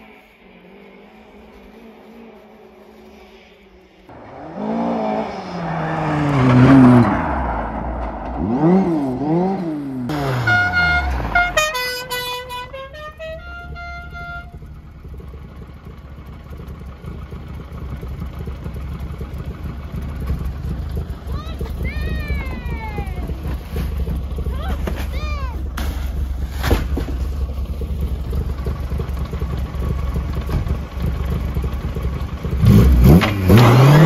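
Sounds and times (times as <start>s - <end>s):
car engine idling: 0.0s - 33.6s
car engine revving: 0.0s - 34.0s
car horn tooting a tune: 10.1s - 14.8s.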